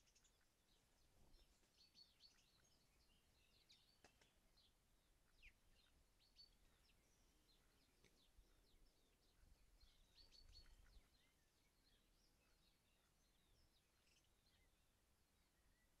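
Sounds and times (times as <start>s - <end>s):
small songbirds chirping: 0.0s - 16.0s.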